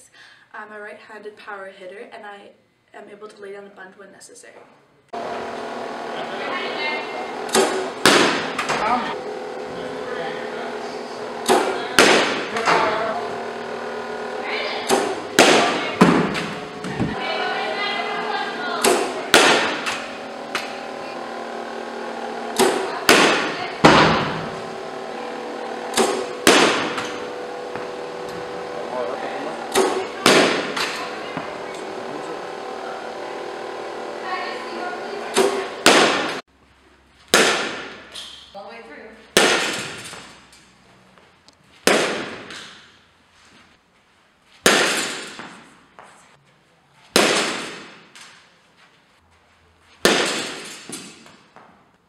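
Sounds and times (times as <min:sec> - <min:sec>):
steady background hum: 0:00.0 - 0:52.0
bat cracking ball: 0:07.2 - 0:09.2, 0:11.2 - 0:13.0, 0:13.7 - 0:17.2, 0:18.6 - 0:20.9, 0:22.4 - 0:24.6, 0:25.6 - 0:28.6, 0:29.6 - 0:32.1, 0:35.3 - 0:36.4, 0:37.3 - 0:38.2, 0:39.3 - 0:40.4, 0:41.8 - 0:43.0, 0:44.6 - 0:45.7, 0:47.1 - 0:48.3, 0:50.0 - 0:51.6
ball thudding into cage: 0:14.8 - 0:17.2.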